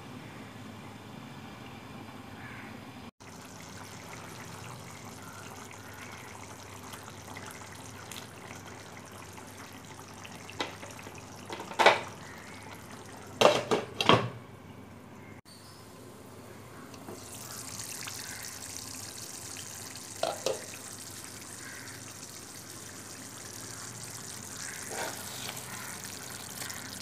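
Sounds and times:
curry bubbling in a pot: 3.2 - 13.5, 17.2 - 27.0.

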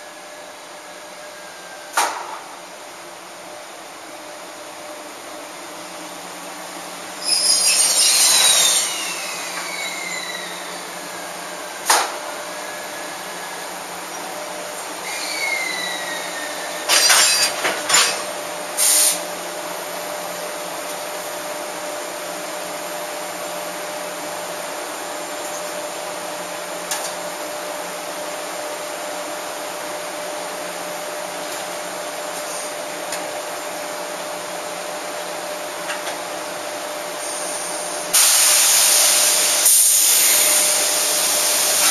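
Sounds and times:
electric locomotive running: 0.0 - 41.9
loud air hisses: 7.1 - 14.1, 14.9 - 17.5, 18.6 - 19.3, 37.2 - 41.9
brake squeals falling in pitch: 7.2 - 10.9, 15.1 - 16.6.

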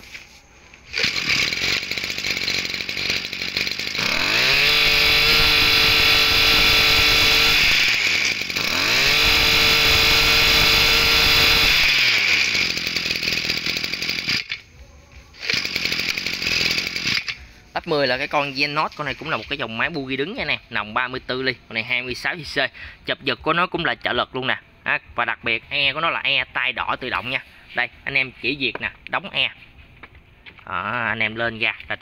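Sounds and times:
brushcutter engine revving: 0.8 - 20.5.

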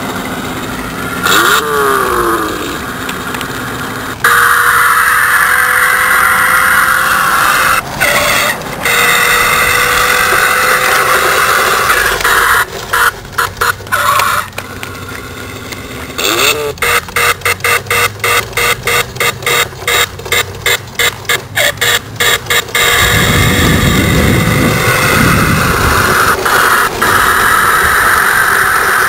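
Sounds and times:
electronic toy car engine sound: 0.0 - 29.0.

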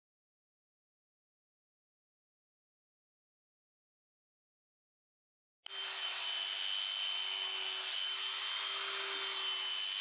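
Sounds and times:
electric sheep shears running: 5.7 - 10.0.

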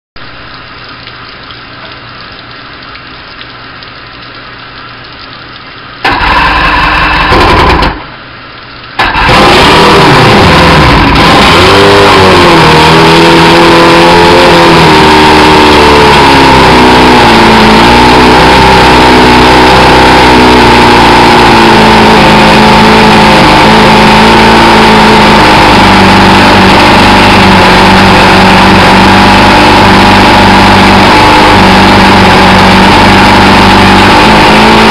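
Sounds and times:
outboard motor starting and idling: 0.6 - 34.9.

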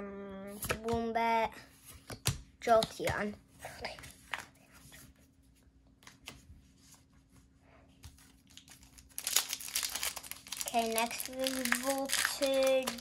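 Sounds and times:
foil wrapper crinkling: 8.2 - 13.0.

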